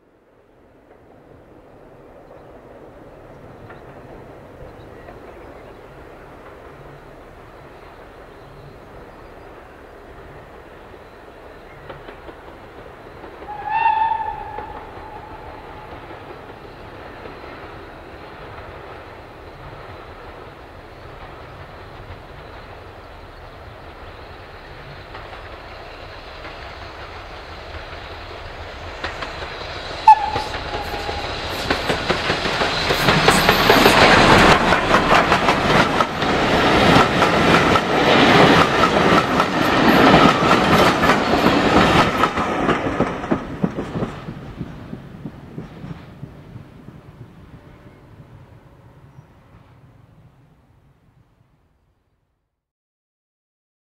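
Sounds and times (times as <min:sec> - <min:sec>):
train passing close by: 0:00.0 - 0:51.8
wheels clacking over rails: 0:11.6 - 0:20.4, 0:25.0 - 0:46.1
steam locomotive whistle: 0:13.4 - 0:16.2, 0:30.0 - 0:32.0.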